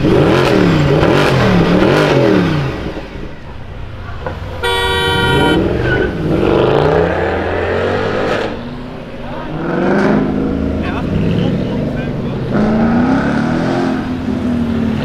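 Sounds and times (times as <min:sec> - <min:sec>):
car engine revving: 0:00.0 - 0:15.0
car horn: 0:04.6 - 0:06.2.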